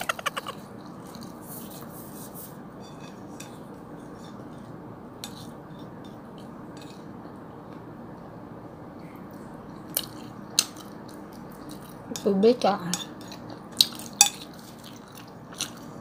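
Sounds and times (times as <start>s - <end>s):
fork scraping a plate: 1.2s - 5.6s.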